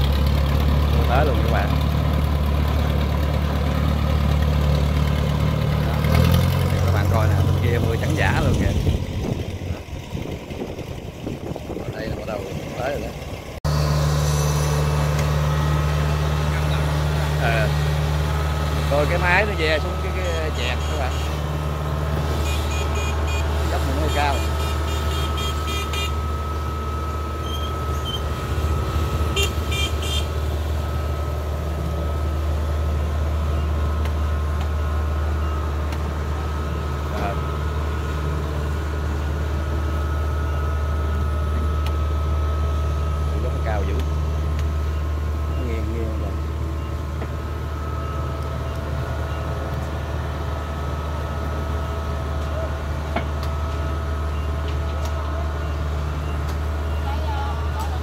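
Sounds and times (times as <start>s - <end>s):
diesel engine running: 0.0s - 58.0s
high whine: 13.6s - 35.7s.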